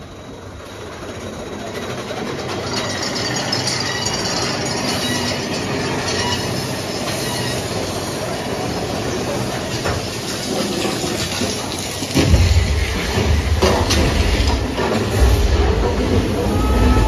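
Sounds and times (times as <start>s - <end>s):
roller coaster wheels on track: 0.0s - 17.0s.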